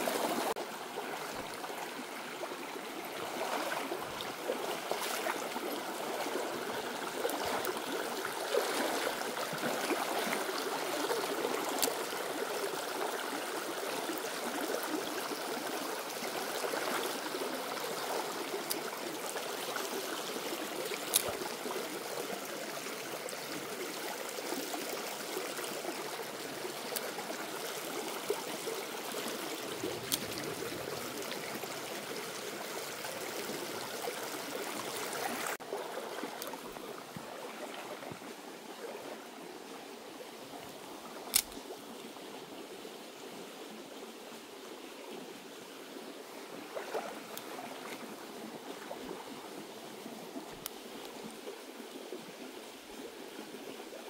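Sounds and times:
shallow stream running: 0.0s - 54.0s
faint sharp clicks: 41.3s - 41.6s.

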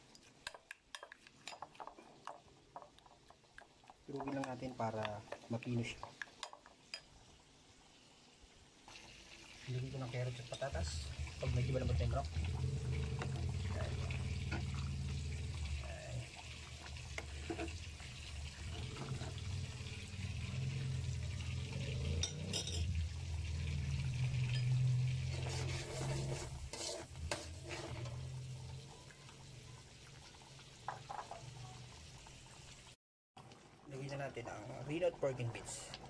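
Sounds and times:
stew simmering and bubbling: 0.0s - 36.0s
metal ladle scraping a pot: 16.3s - 21.3s, 24.2s - 28.9s.

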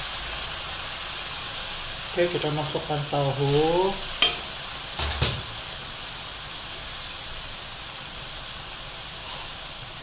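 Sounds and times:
food sizzling in oil: 0.0s - 10.0s.

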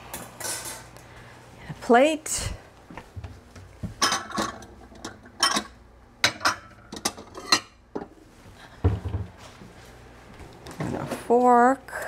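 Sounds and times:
plates clinking together: 4.0s - 8.1s.

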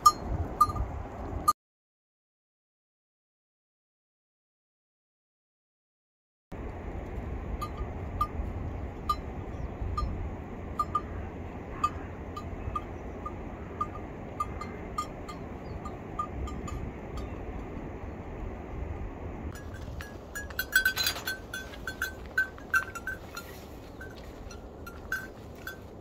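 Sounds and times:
livestock bells clinking: 0.0s - 1.0s, 7.6s - 17.4s, 19.6s - 26.0s.

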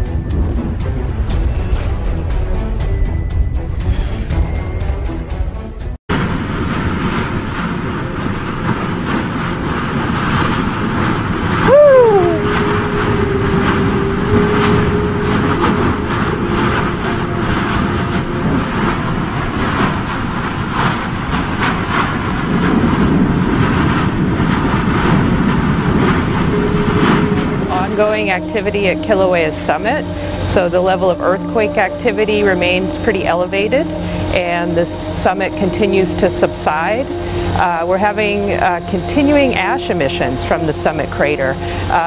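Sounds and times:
lava vent roaring: 0.0s - 42.0s
spatter crackling and popping: 6.1s - 16.9s
sharp falling tone: 11.6s - 21.1s, 25.4s - 40.9s.

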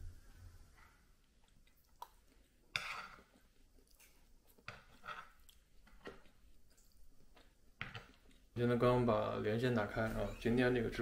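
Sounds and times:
soft chewing: 0.7s - 8.6s
fork scraping pan: 2.7s - 3.4s, 4.0s - 5.4s.

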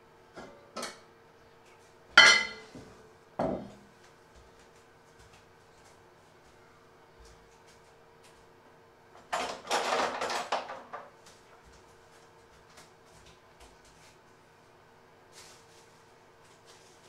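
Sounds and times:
faint steady hum: 0.0s - 17.0s
kitchen items clattering: 9.2s - 11.2s.

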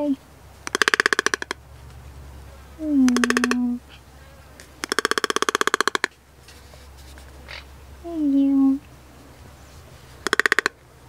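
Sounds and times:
toucan rattling croaks: 0.6s - 1.7s, 3.1s - 3.7s, 4.6s - 6.2s, 10.2s - 10.8s.

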